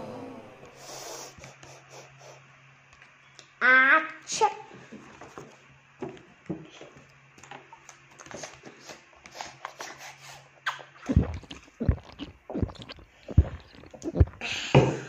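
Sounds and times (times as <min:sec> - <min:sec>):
child drinking from plastic bottle: 0:08.2 - 0:14.5
mouth clicks: 0:10.6 - 0:14.4
low gulps: 0:10.7 - 0:14.8.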